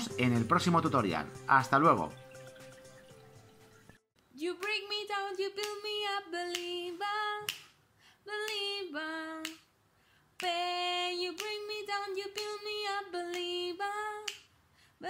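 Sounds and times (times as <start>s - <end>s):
pop song with woman singing: 4.3s - 15.0s.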